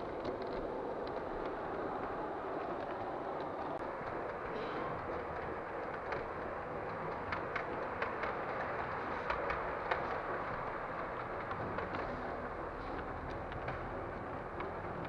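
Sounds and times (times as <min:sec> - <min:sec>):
model train wheels clicking: 0:00.0 - 0:15.0
steady background hum: 0:00.0 - 0:15.0.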